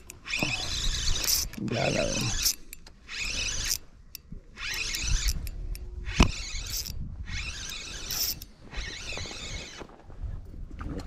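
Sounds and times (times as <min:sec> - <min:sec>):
spinning reel cranking: 0:00.0 - 0:03.8, 0:04.6 - 0:09.8
sharp reel click: 0:00.0 - 0:09.8
fishing line scraping: 0:00.0 - 0:09.9.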